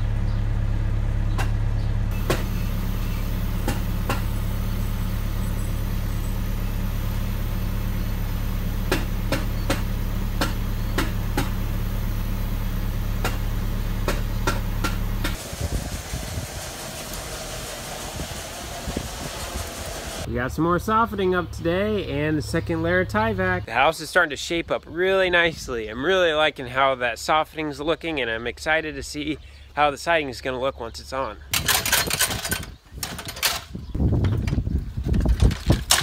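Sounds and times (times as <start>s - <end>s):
diesel engine idling: 0.0s - 23.7s.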